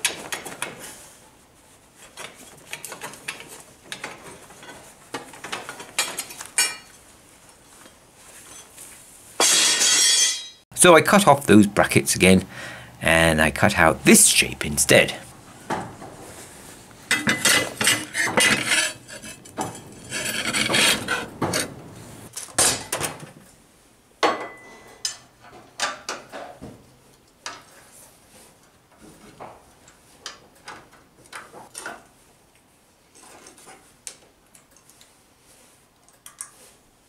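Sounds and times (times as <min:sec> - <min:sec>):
metal clinks and scrapes: 0:07.8 - 0:08.8, 0:17.1 - 0:21.8.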